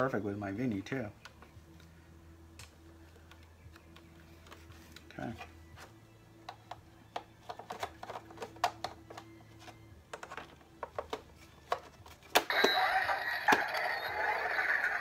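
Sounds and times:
plastic helmet clicks and taps: 0:06.4 - 0:09.3
toy helmet activation sound: 0:12.4 - 0:15.0.

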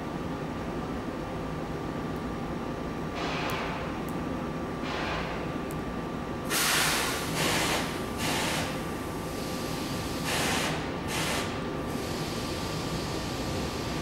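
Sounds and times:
train brake air hisses: 0:06.5 - 0:13.9.

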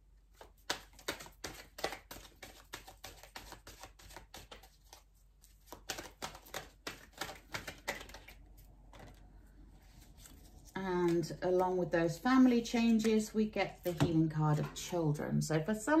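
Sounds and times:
cards being shuffled by hand: 0:00.3 - 0:11.6.

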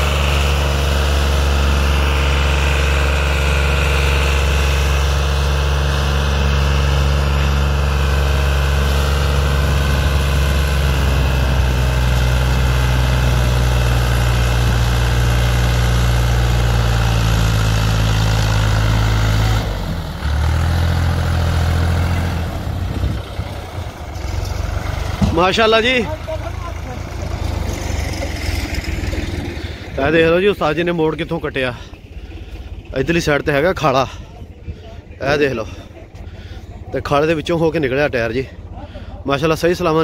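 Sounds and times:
tractor diesel engine under load: 0:00.0 - 0:40.0.

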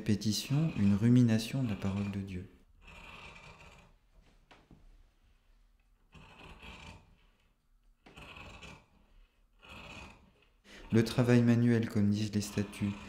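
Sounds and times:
shears cutting sheet: 0:00.0 - 0:02.4, 0:10.9 - 0:13.0.

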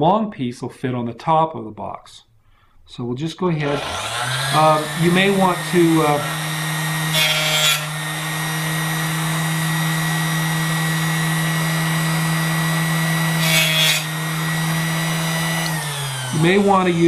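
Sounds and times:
power saw humming: 0:03.6 - 0:17.0
saw blade scraping through metal: 0:03.8 - 0:08.8, 0:13.1 - 0:16.8.

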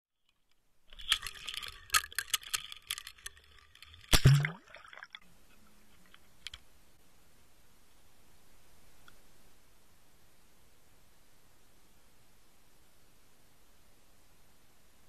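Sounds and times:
camera clicking and rattling: 0:00.9 - 0:04.3
camera splashing into water: 0:04.0 - 0:05.2
faint muffled hiss: 0:04.1 - 0:15.0.

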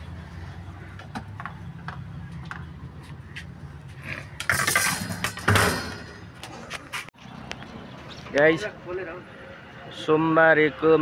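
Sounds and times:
metal clattering and scraping: 0:04.2 - 0:07.1.

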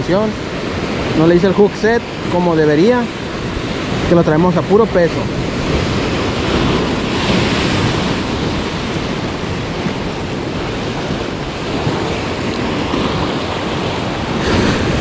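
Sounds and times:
surf washing against rocky shore: 0:00.0 - 0:15.0
wind noise on microphone: 0:00.0 - 0:15.0.

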